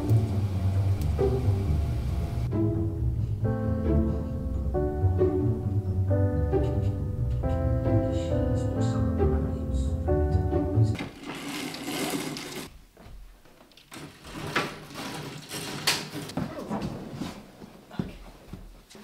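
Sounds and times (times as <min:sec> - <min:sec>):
keyboard chords music: 0:00.0 - 0:11.0.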